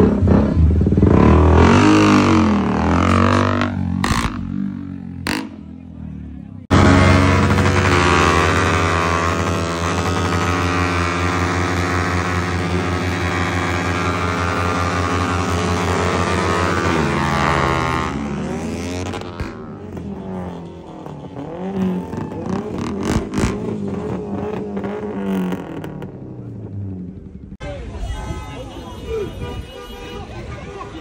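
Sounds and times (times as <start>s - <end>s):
motorcycle engine revving high: 0.0s - 5.7s, 6.7s - 27.5s.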